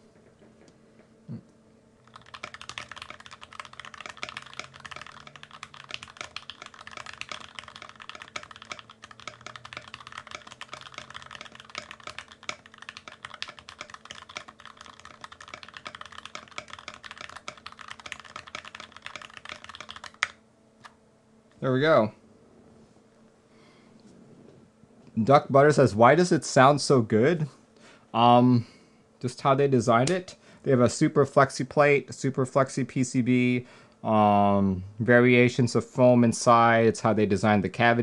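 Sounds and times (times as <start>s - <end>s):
fast mechanical keyboard typing: 2.0s - 20.4s.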